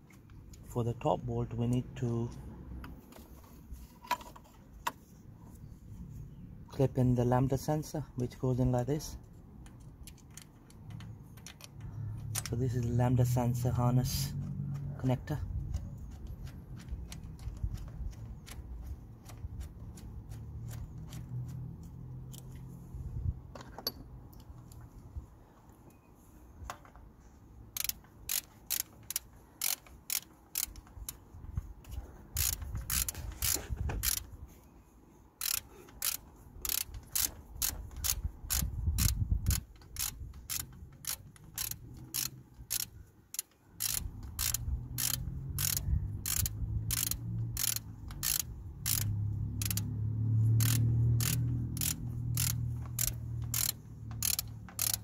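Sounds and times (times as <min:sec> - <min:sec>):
socket ratchet clicking: 0:09.6 - 0:12.9, 0:27.7 - 0:31.2, 0:32.3 - 0:34.3, 0:35.4 - 0:55.0.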